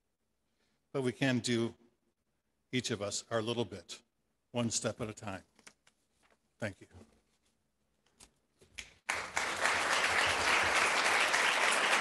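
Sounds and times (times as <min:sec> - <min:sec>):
audience applauding: 0:09.1 - 0:12.0.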